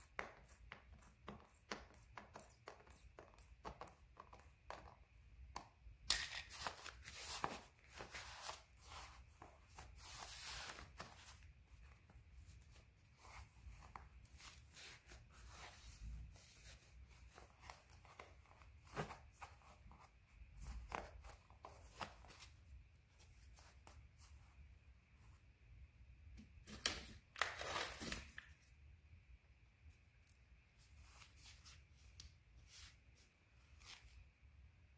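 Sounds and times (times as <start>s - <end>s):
satin fabric rustling: 6.5s - 25.5s, 30.7s - 34.4s.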